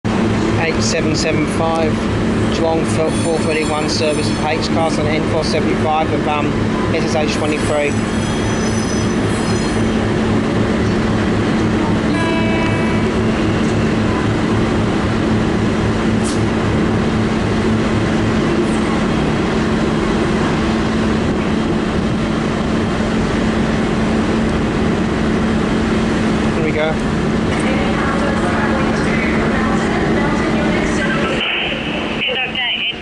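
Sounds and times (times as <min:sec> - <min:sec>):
faint high tone: 0:12.1 - 0:14.3.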